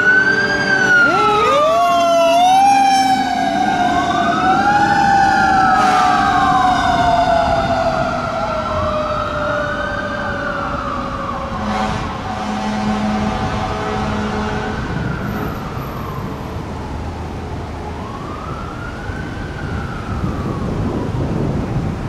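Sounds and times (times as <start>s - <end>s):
mechanical siren winding down: 0.0s - 11.9s
siren wail rising and falling: 0.0s - 22.0s.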